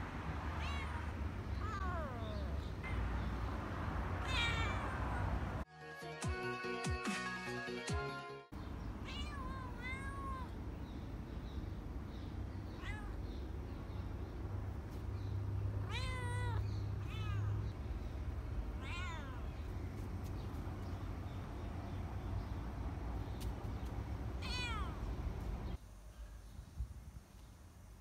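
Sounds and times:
cats meowing: 0.5 - 3.4, 4.1 - 5.6, 9.0 - 10.6, 12.7 - 14.0, 15.7 - 22.0, 24.4 - 25.2.

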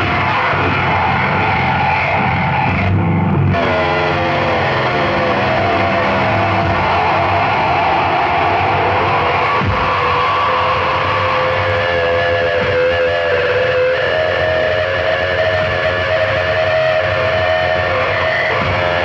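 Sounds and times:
distorted noise music: 0.0 - 19.0.

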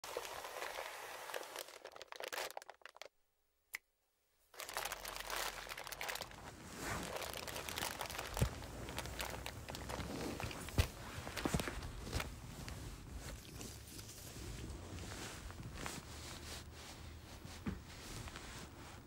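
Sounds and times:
plastic packets crinkling: 0.0 - 3.1, 4.6 - 12.3.

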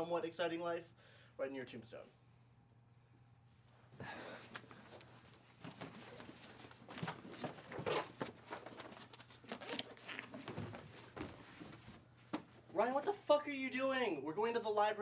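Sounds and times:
backpack and papers rustling: 4.5 - 12.6.

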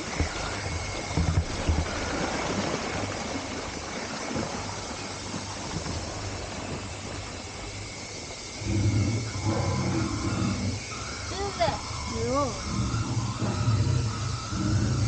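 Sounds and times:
water rushing around raft: 0.0 - 15.0
low rumble: 5.6 - 15.0.

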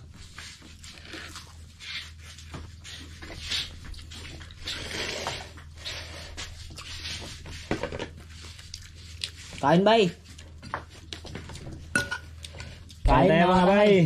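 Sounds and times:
spoon clinking against bowl: 12.0 - 12.3.

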